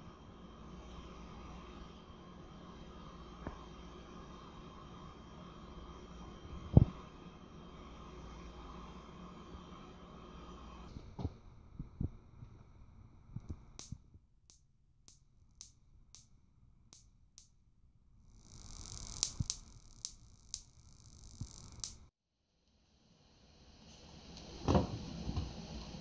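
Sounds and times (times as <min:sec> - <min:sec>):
static sparks snapping: 0:13.5 - 0:16.3, 0:18.3 - 0:22.1
faint hiss: 0:18.3 - 0:22.1.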